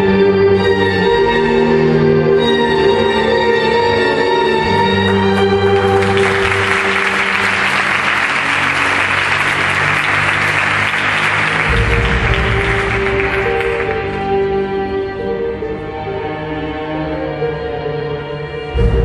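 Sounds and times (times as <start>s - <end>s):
orchestral string music: 0.0s - 19.0s
audience applause: 5.0s - 14.5s.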